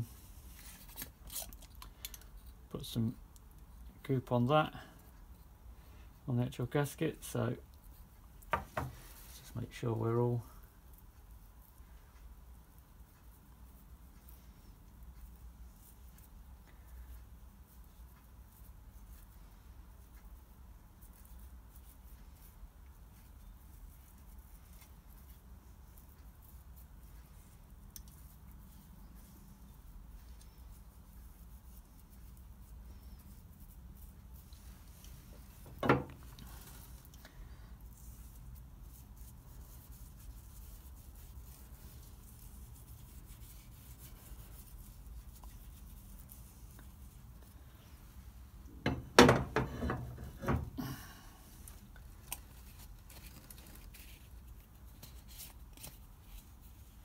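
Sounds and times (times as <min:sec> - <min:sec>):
low room hum: 0:00.0 - 0:57.0
brush scratching and ticking on metal: 0:10.9 - 0:47.6.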